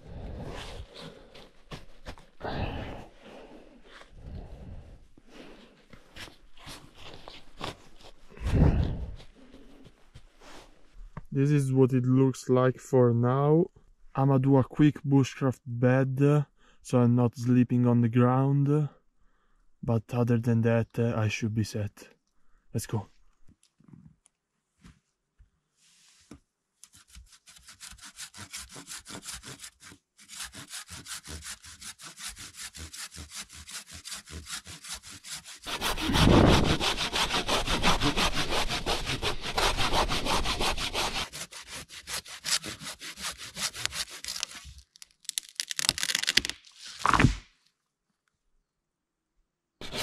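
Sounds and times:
hand saw cutting wood: 0:26.8 - 0:44.8.

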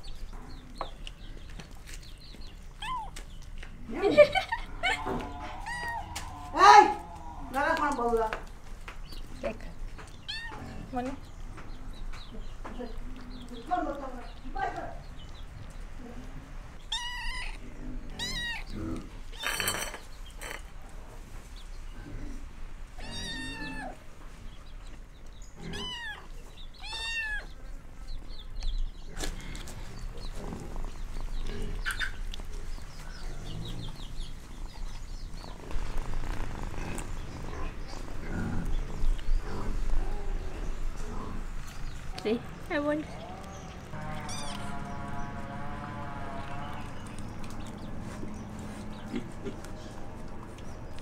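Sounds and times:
kitten meowing: 0:02.8 - 0:03.2, 0:04.8 - 0:07.2, 0:10.3 - 0:10.6, 0:16.9 - 0:17.6, 0:18.2 - 0:18.7, 0:23.0 - 0:24.0, 0:25.7 - 0:27.5, 0:44.2 - 0:44.8
rustling noise: 0:35.3 - 0:38.2.

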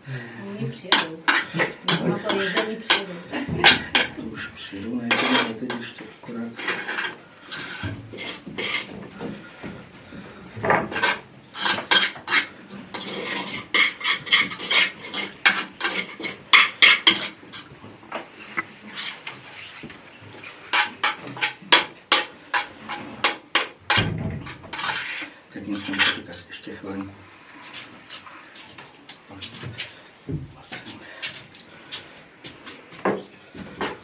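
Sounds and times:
spoon scraping ceramic bowl: 0:06.6 - 0:08.9, 0:10.9 - 0:17.7.

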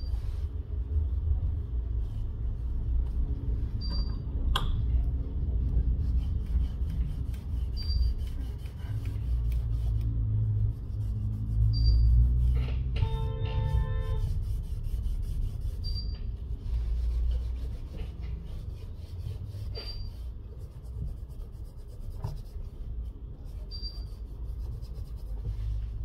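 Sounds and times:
tissue rubbing on glass: 0:05.8 - 0:12.6, 0:13.7 - 0:26.0.

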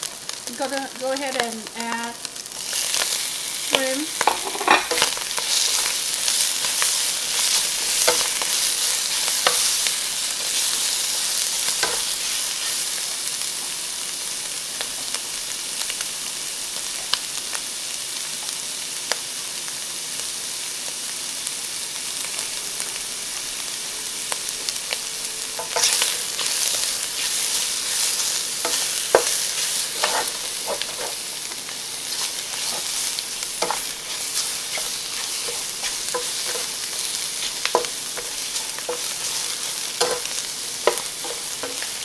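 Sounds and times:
shrimp sizzling in hot oil: 0:00.0 - 0:42.0
spatula scraping a pan: 0:02.5 - 0:13.0, 0:25.6 - 0:42.0.

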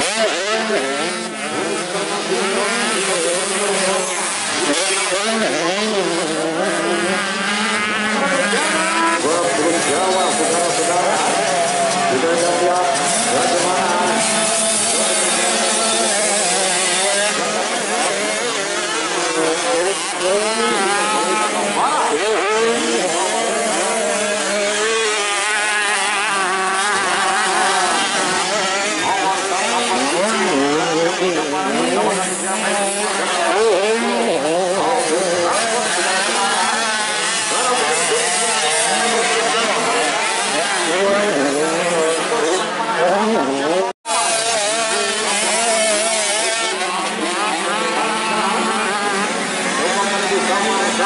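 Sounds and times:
dirt bike engines revving: 0:00.0 - 0:51.0.

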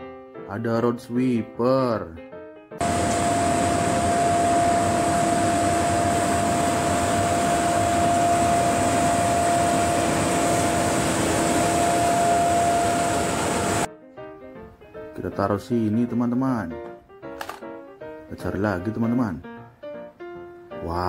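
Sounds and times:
constant pitched hum: 0:02.8 - 0:13.9
sweeper truck rushing noise: 0:02.8 - 0:13.9.

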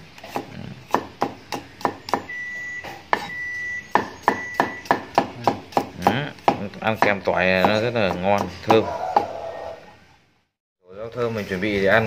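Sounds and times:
steady high beep-like tone: 0:02.3 - 0:04.8.

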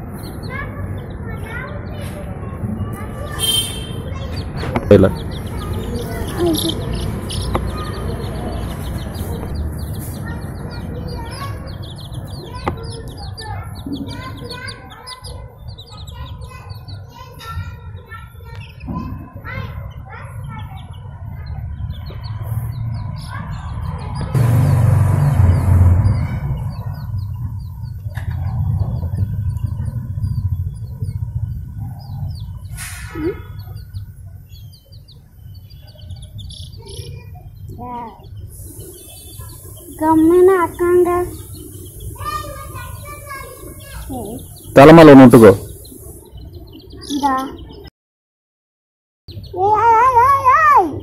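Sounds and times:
baby chicks peeping: 0:00.0 - 0:47.9, 0:49.3 - 0:51.0
steady low rumble: 0:21.8 - 0:32.8.

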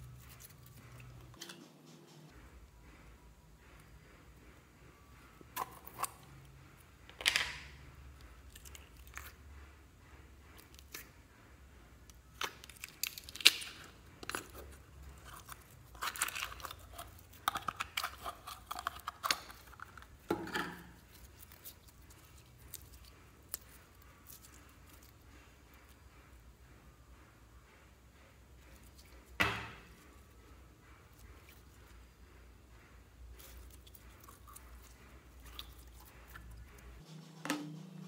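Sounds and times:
plastic jar crinkling and clicking: 0:12.4 - 0:20.8.

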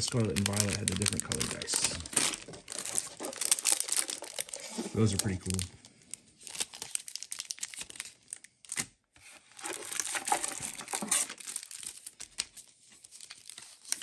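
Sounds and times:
plastic wrapping crinkling: 0:00.0 - 0:14.0.

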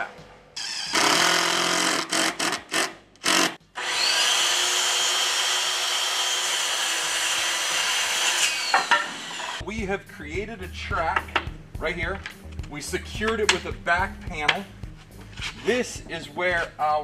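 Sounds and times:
cordless drill into wood: 0:00.6 - 0:09.6.

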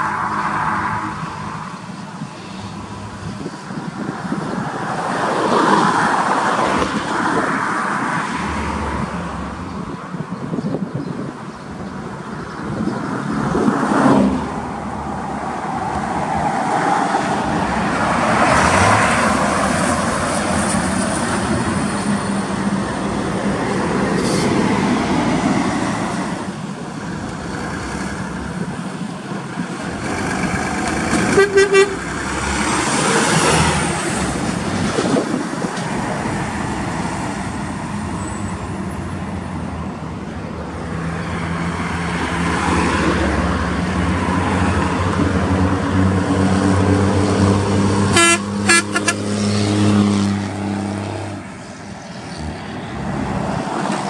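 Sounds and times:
heavy trucks passing: 0:00.0 - 0:54.0
truck horn toots: 0:31.2 - 0:32.1, 0:48.1 - 0:49.3.

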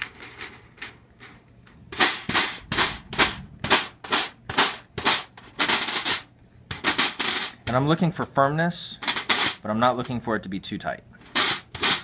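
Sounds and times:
snare adjuster scraping rubs: 0:02.0 - 0:07.8, 0:09.0 - 0:09.6, 0:11.2 - 0:12.0.

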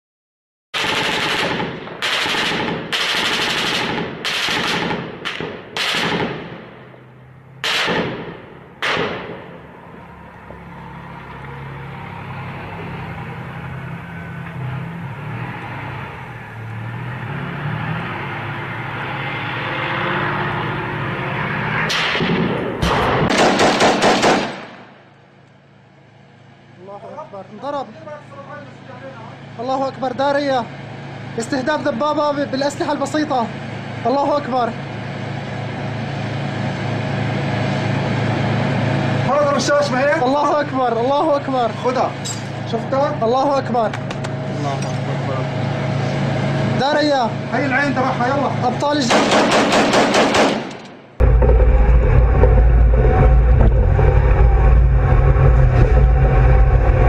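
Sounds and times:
automatic gunfire burst: 0:00.8 - 0:06.6, 0:07.6 - 0:09.3, 0:22.2 - 0:24.8, 0:49.1 - 0:50.9
loud gunshots ringing: 0:00.8 - 0:06.9, 0:07.6 - 0:09.6, 0:21.9 - 0:24.9, 0:49.0 - 0:51.0
steady low rumble: 0:50.9 - 0:57.0.

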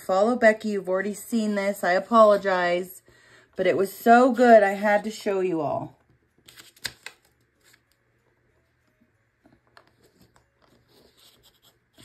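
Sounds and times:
blade scratching through paper: 0:10.7 - 0:12.0.

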